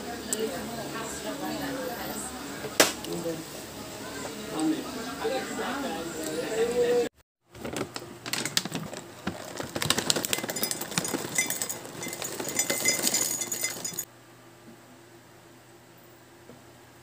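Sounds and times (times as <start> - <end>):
granola rattling into glass mug: 7.6 - 14.1.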